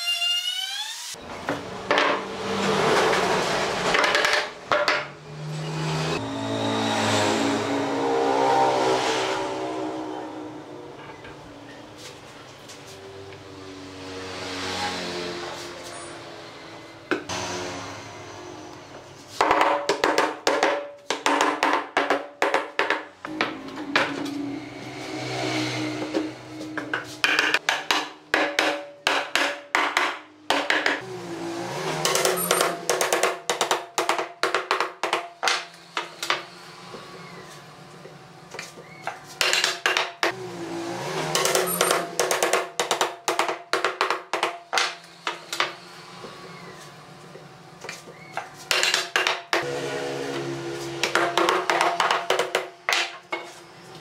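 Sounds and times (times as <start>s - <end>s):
wooden mallet tapping boards: 19.4s - 23.6s, 26.8s - 31.0s, 32.0s - 36.1s, 39.4s - 40.3s, 41.4s - 45.0s, 48.7s - 49.6s, 51.0s - 53.2s.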